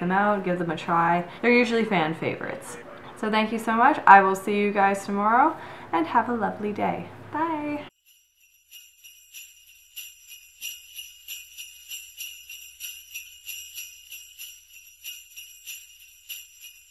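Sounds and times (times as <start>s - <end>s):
sleigh bells shaking: 7.9s - 16.9s.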